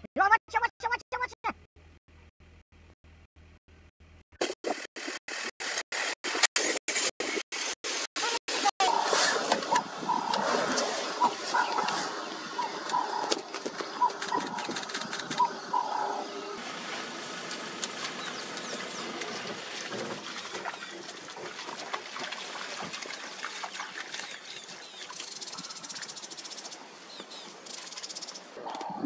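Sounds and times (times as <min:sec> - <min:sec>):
bird chirps: 0:11.2 - 0:16.6, 0:24.2 - 0:29.0.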